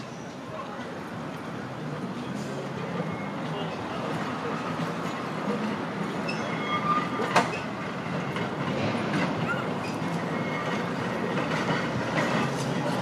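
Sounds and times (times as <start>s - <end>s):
tram running gear rumble: 0.0s - 13.0s
wheel squeals: 6.0s - 7.8s, 9.1s - 13.0s.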